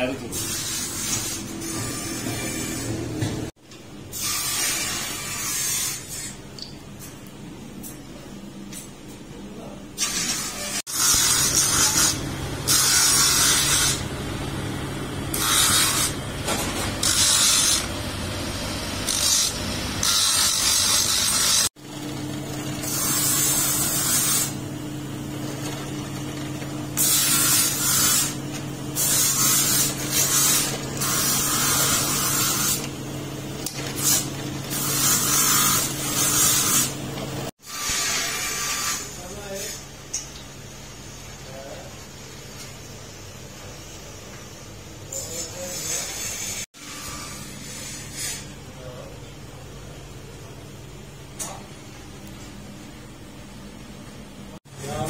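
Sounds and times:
abrasive wheel motor hum: 10.9 - 37.5.

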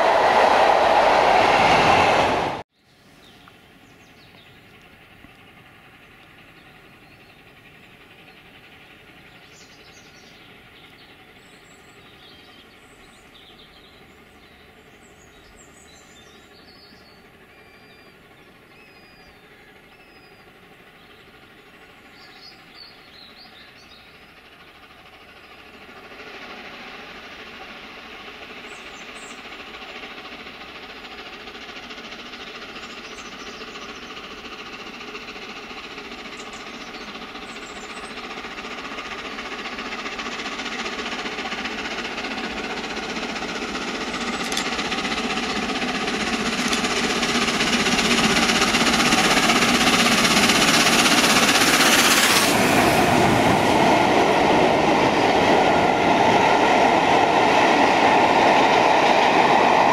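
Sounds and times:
steam locomotive working: 0.0 - 2.6, 3.3 - 59.9
birds chirping: 32.4 - 52.4.

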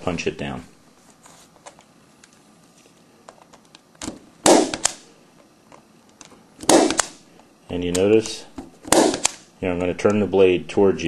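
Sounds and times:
punch-down tool snapping: 4.0 - 5.0, 6.6 - 7.2, 7.9 - 9.5.

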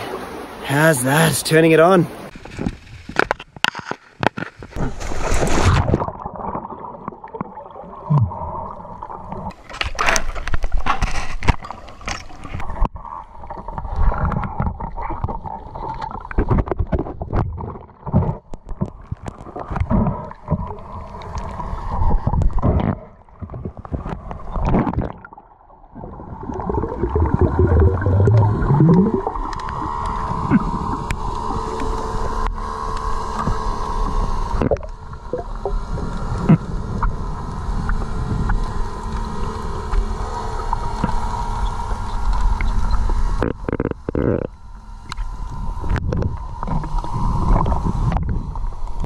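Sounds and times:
muffled water sloshing and gurgling: 2.1 - 49.0.

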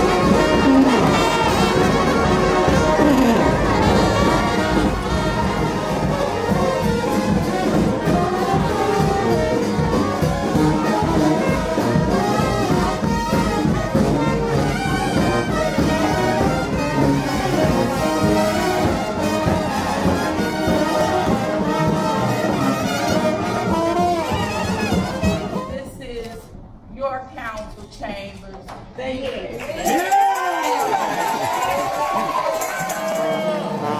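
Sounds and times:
bass drum beat: 0.0 - 25.9
brass band playing: 0.0 - 26.0, 31.0 - 33.9.

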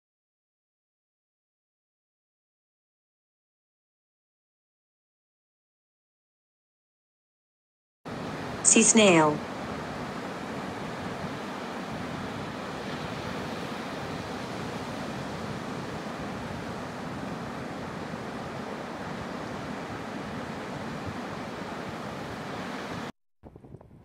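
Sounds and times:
ocean surf breaking: 8.1 - 23.1.

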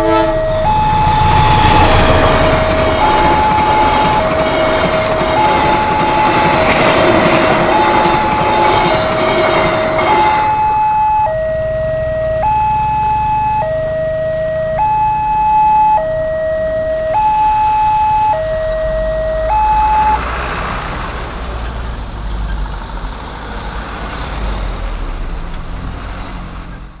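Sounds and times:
level crossing warning alarm: 0.0 - 20.3
passenger train passing: 0.0 - 27.0
vehicle engines: 0.0 - 27.0.

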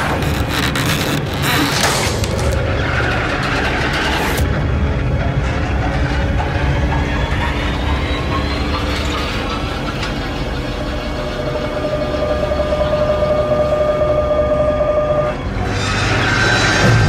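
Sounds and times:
elevator rumble and rattle: 0.0 - 17.0.

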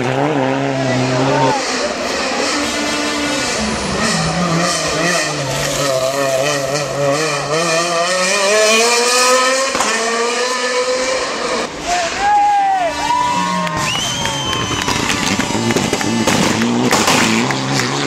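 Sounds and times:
rally car engine revving: 0.0 - 18.0
sharp crack: 14.8 - 17.7.

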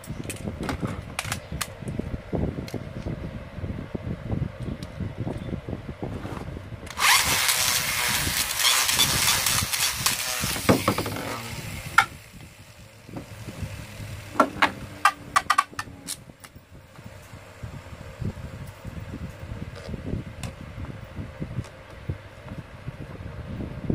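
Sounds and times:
spinning top grinding on plastic: 6.9 - 16.2.

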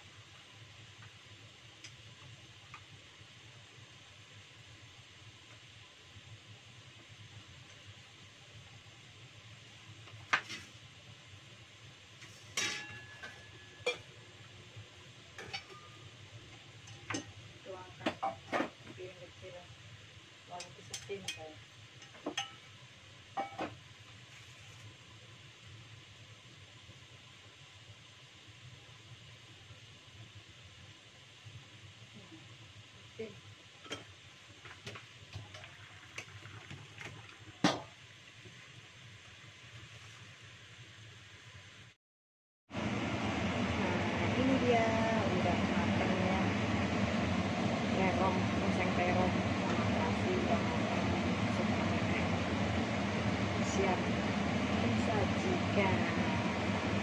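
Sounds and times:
metal kitchenware clinking: 12.6 - 14.1, 15.4 - 16.0.

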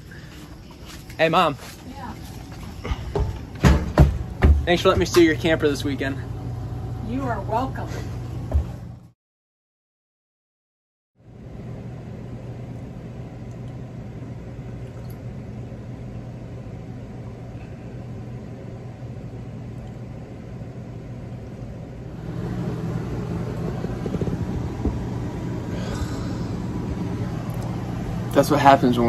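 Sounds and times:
low mechanical hum: 0.0 - 9.2, 11.2 - 29.0
low rumble: 22.0 - 28.9.

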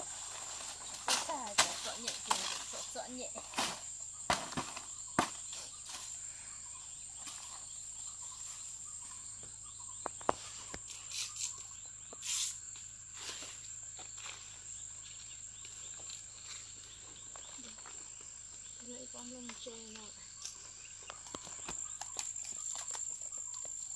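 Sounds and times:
leaves rustling and crackling: 0.0 - 6.3, 10.1 - 23.9
high-pitched insect drone: 0.0 - 23.9.

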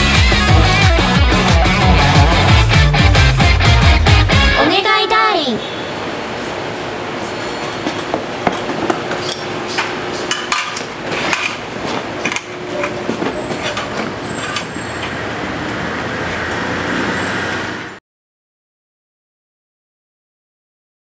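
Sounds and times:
machinery drone: 0.0 - 4.6
tools knocking and clanking: 7.8 - 11.6.

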